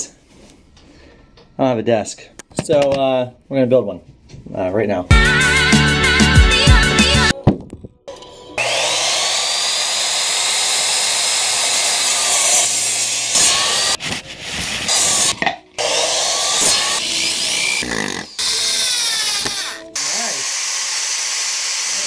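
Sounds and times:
power drill running: 8.6 - 14.0, 14.9 - 22.0
miter saw cutting wood: 8.6 - 22.0.

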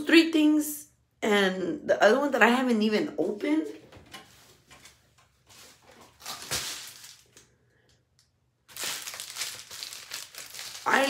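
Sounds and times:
plastic mailer rustling: 4.6 - 7.4, 8.7 - 11.0.

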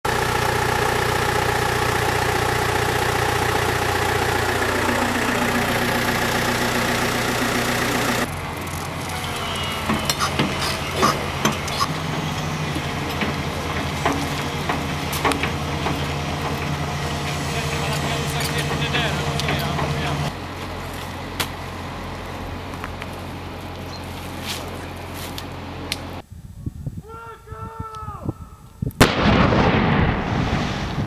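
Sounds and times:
engine running: 0.0 - 26.2
excavator engine idling: 0.0 - 26.2
sharp clicks and knocks: 12.8 - 17.4.

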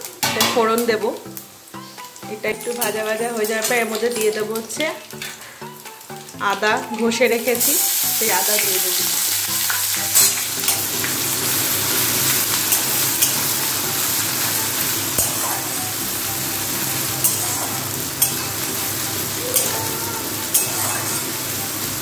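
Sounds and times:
spices sizzling in hot oil: 0.0 - 22.0
metal spatula scraping pan: 9.6 - 15.9, 16.7 - 21.5.

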